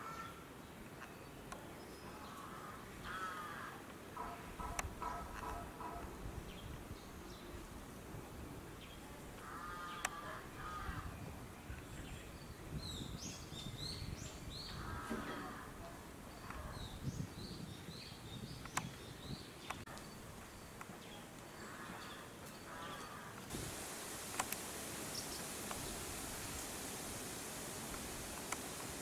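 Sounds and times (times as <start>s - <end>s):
crows cawing: 2.4s - 6.0s, 9.4s - 11.1s, 14.8s - 15.8s
small birds chirping: 8.7s - 29.0s.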